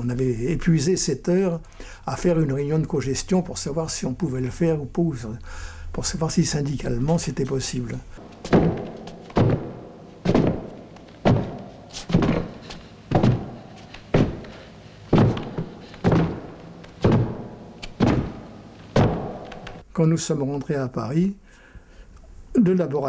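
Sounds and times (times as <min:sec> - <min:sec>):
heavy thuds: 0:08.2 - 0:19.8.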